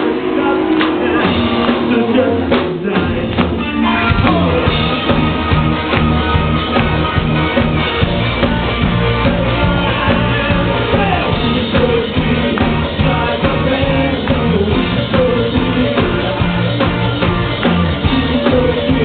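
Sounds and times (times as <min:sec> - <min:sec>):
person singing: 0:00.0 - 0:05.6, 0:08.0 - 0:19.0
live rock band playing: 0:00.0 - 0:19.0.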